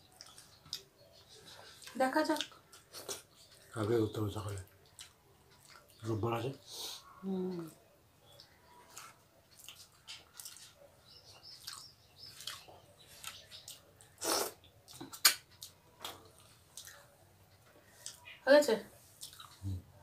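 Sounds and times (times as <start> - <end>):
mouth smacks of chewing: 0.2 - 3.7, 4.6 - 6.0, 7.7 - 17.1, 17.9 - 18.4, 19.2 - 19.7.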